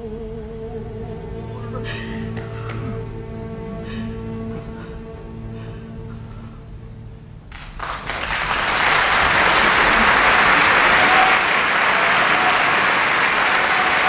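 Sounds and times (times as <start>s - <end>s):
music: 0.0s - 10.3s
audience applause: 7.5s - 14.0s.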